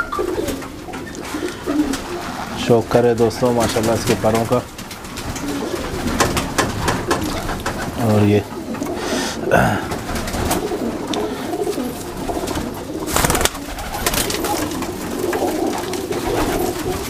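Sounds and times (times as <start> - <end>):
pigeon wings flapping: 0.0 - 9.0, 9.9 - 17.0
pigeons cooing: 0.0 - 17.0.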